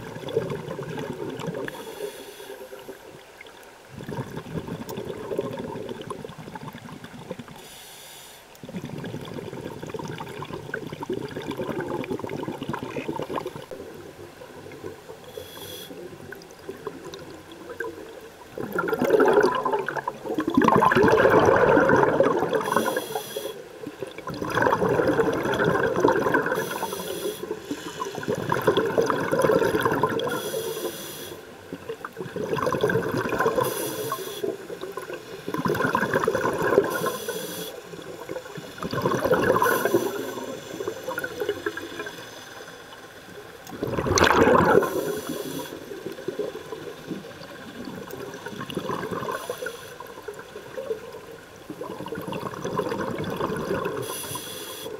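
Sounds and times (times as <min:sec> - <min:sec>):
exhaled bubbles gushing: 0:00.0 - 0:01.9, 0:02.8 - 0:07.6, 0:08.6 - 0:15.3, 0:16.0 - 0:30.5, 0:31.6 - 0:42.2, 0:43.4 - 0:54.4
regulator inhale hiss: 0:01.7 - 0:03.2, 0:07.6 - 0:08.6, 0:15.2 - 0:16.1, 0:22.6 - 0:23.7, 0:26.5 - 0:28.4, 0:30.2 - 0:31.6, 0:33.6 - 0:35.5, 0:36.8 - 0:38.8, 0:39.6 - 0:43.0, 0:44.8 - 0:46.0, 0:49.2 - 0:50.2, 0:54.0 - 0:54.9.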